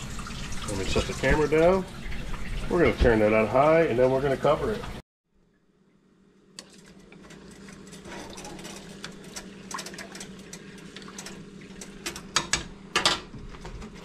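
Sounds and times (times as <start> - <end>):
stovetop burner humming: 5.4 - 14.0.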